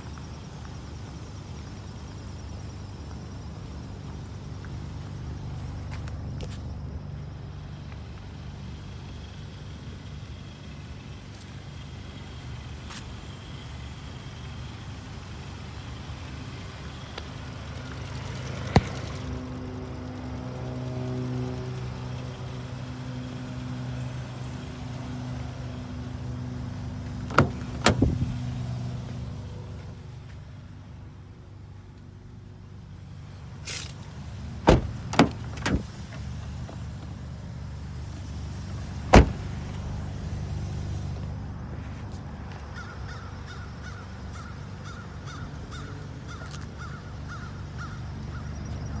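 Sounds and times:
car door latch clicks: 27.3s - 28.2s, 34.7s - 35.9s, 39.1s - 39.4s.

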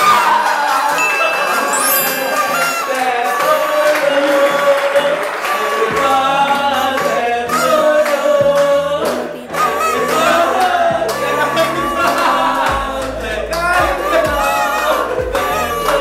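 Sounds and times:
person singing: 0.0s - 16.0s
steady bass line: 5.8s - 16.0s.

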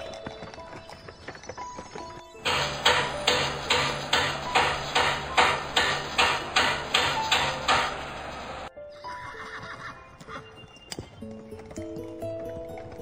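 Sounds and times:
music: 0.0s - 13.0s
steady rhythmic knocking: 2.3s - 8.7s.

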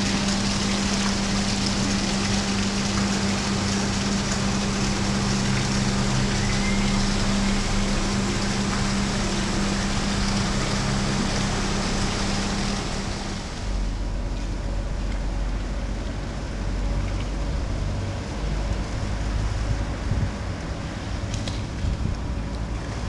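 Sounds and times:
mechanical hum: 0.0s - 23.0s
wind rumble on microphone: 15.8s - 23.0s.

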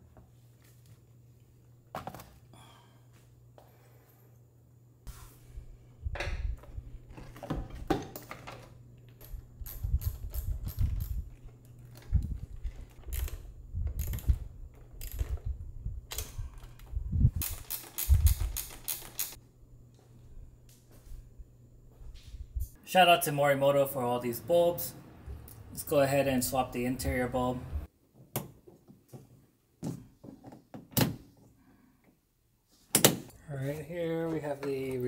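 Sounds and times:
tools and car parts rattling: 6.6s - 19.4s
evenly spaced clicks: 17.4s - 19.4s.

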